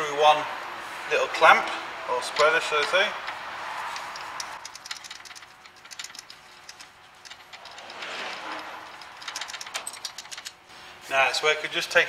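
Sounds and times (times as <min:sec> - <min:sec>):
socket ratchet clicking: 0:03.3 - 0:08.0, 0:08.8 - 0:10.6
scraping rustle: 0:03.7 - 0:11.1.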